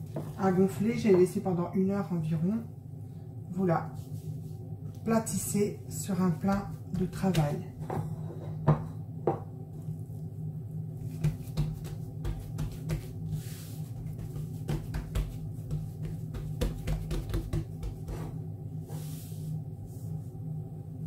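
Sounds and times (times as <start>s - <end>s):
steady low hum: 0.0s - 21.0s
hands patting dough: 6.1s - 7.7s, 11.0s - 18.4s.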